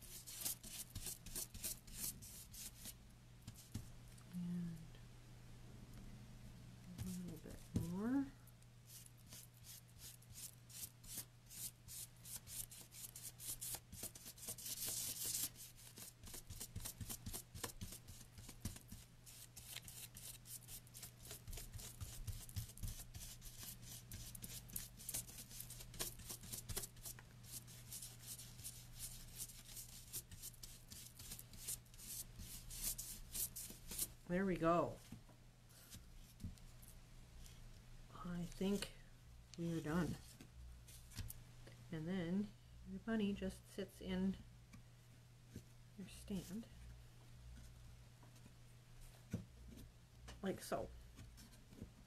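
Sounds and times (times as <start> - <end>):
dry paintbrush scratching strokes: 0.0 - 3.7, 8.9 - 34.2.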